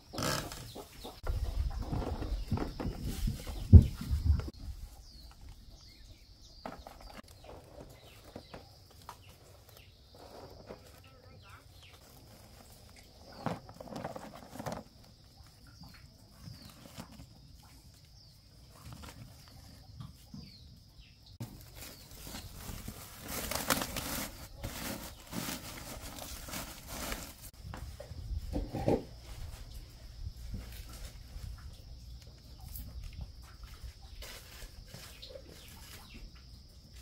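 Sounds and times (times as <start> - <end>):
birds chirping: 0.0 - 28.3
straw rustling: 21.4 - 28.0.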